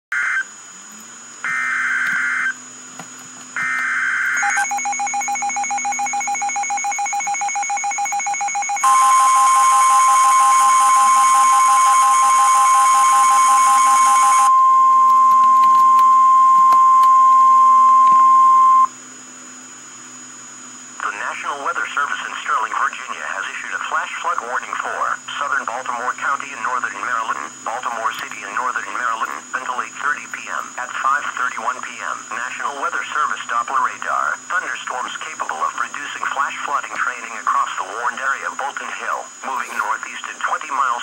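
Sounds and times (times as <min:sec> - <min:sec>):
screeching data bursts: 0:01.4 - 0:02.6, 0:03.6 - 0:14.5
loud steady alert tone: 0:03.6 - 0:18.9
rapidly pulsing alert tone: 0:03.8 - 0:14.5.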